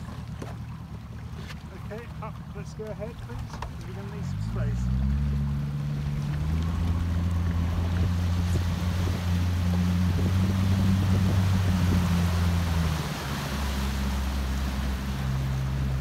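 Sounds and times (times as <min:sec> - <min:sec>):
boat engine humming: 0:00.0 - 0:16.0
wind: 0:00.0 - 0:16.0.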